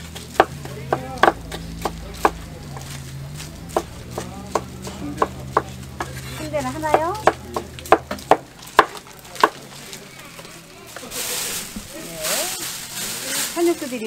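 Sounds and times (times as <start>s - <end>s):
knife chopping on cutting board: 0.0s - 9.6s.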